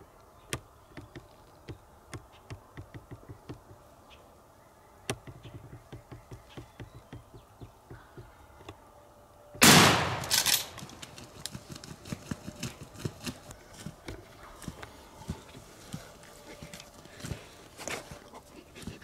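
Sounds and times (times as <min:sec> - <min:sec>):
shotgun blast: 0:09.6 - 0:10.8.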